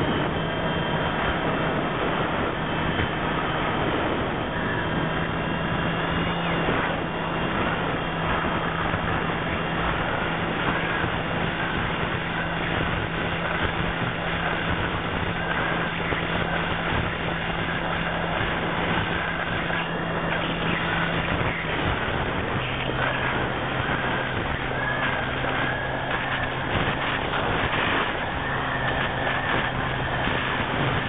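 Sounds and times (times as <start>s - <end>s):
motor and propeller drone: 0.0s - 31.0s.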